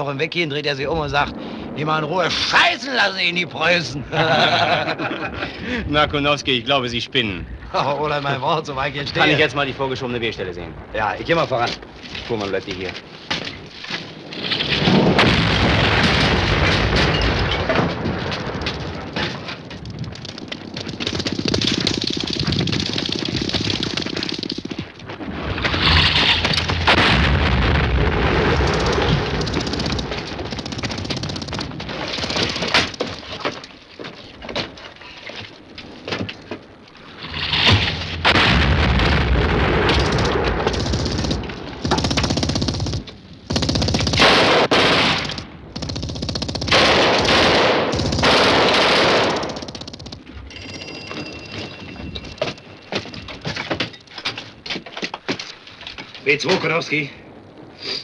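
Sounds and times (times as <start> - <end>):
artillery shells exploding: 13.5 - 33.3, 37.1 - 45.9, 46.6 - 50.5.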